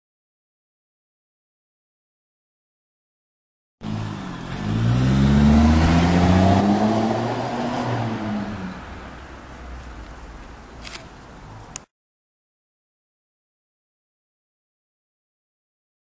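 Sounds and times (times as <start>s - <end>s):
vehicle engine passing by: 3.8s - 9.7s.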